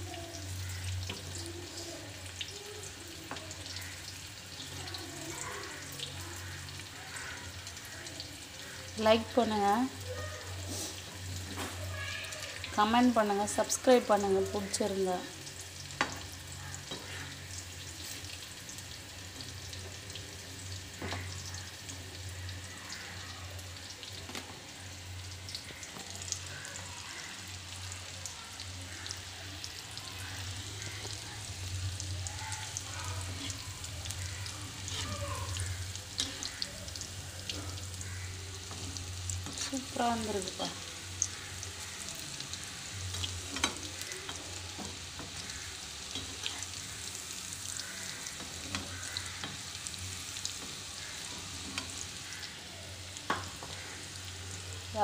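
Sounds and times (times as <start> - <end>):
batter deep-frying in hot oil: 0.0 - 55.0
metal spatula stirring: 34.7 - 35.1.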